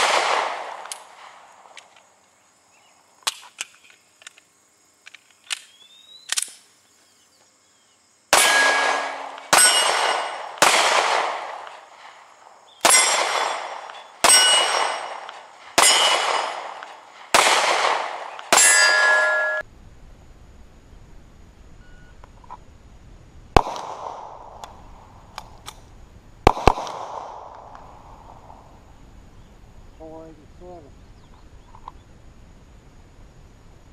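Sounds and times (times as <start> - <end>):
pistol shots: 0.0 - 1.8, 8.3 - 12.2, 12.8 - 19.6, 23.6 - 24.8, 26.4 - 28.2
steel targets clanging: 8.4 - 10.5, 12.8 - 17.0, 18.5 - 19.6.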